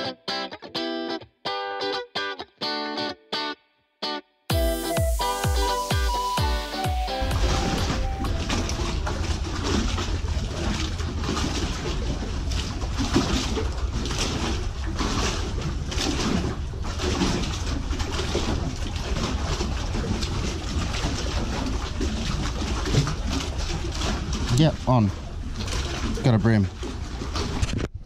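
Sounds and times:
water lapping against pier: 4.5s - 28.0s
wind rumble on microphone: 7.2s - 28.0s.

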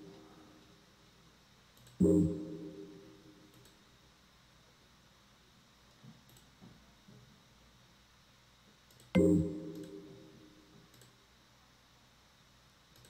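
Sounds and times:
faint clicks: 1.7s - 2.1s, 5.9s - 6.8s, 8.9s - 9.1s, 10.9s - 11.2s
electronic tone: 2.0s - 3.3s, 9.2s - 10.4s.

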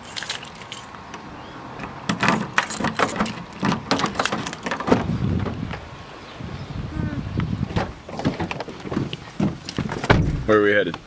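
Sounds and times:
keys jangling: 0.0s - 1.0s, 2.1s - 4.9s.

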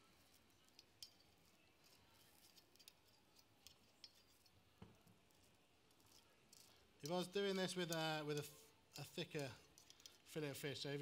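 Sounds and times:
cooking utensils clicking: 5.9s - 10.4s.

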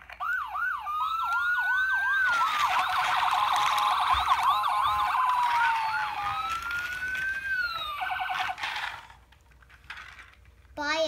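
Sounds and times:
toy siren yelps: 0.2s - 8.8s
toy siren wail: 0.2s - 8.9s
toy siren warble: 0.2s - 9.0s.

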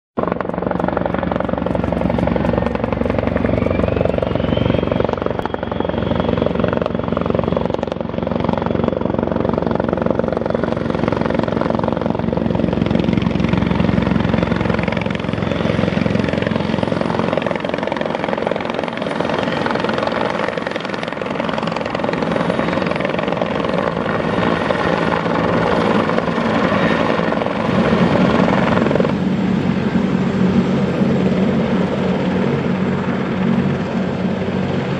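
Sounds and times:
helicopter rotor beat: 0.2s - 34.9s
helicopter turbine whine: 0.2s - 34.9s.

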